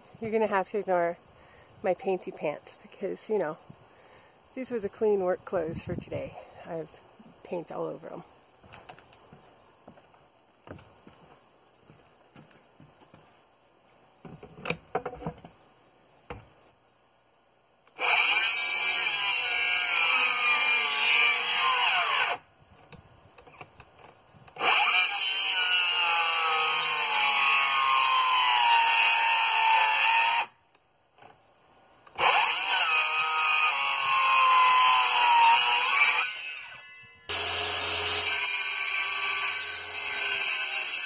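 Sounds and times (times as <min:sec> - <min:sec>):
power saw cutting lumber: 0:17.9 - 0:22.4, 0:24.6 - 0:30.5, 0:32.2 - 0:41.0.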